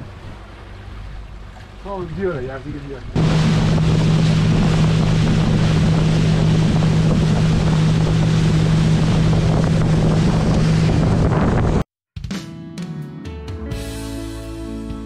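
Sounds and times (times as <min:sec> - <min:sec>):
outboard motor droning: 0:00.0 - 0:11.8
rushing water: 0:00.0 - 0:11.8
wind buffeting microphone: 0:02.0 - 0:11.8.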